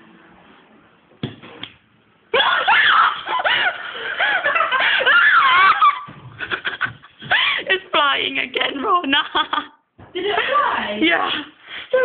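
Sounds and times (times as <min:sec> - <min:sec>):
laughter: 0:03.2 - 0:07.7, 0:09.2 - 0:10.7.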